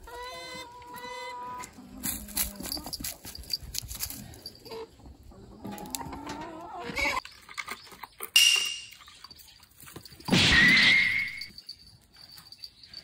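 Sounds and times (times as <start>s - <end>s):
hens clucking: 0.0s - 3.0s, 4.6s - 8.2s.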